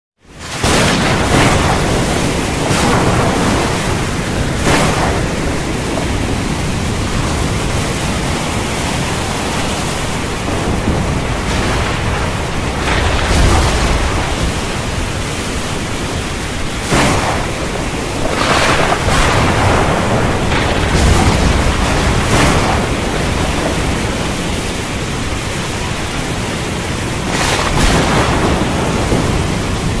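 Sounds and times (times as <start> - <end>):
heavy rain hissing: 0.2 - 30.0
thunder rumbling and cracking: 0.3 - 30.0.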